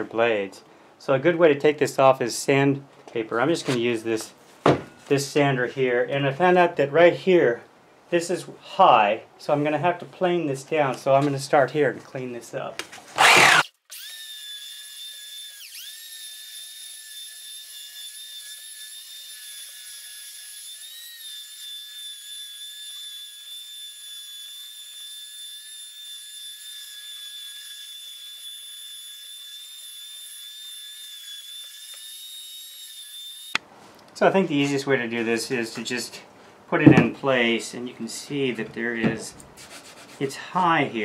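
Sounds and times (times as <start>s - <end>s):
electric hand planer whining: 13.2s - 33.6s.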